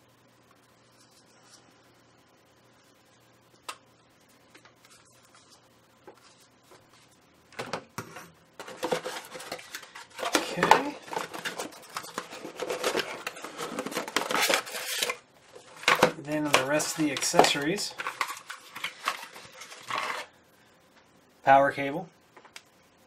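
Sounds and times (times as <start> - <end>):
cardboard rustling and scraping: 8.1 - 20.3.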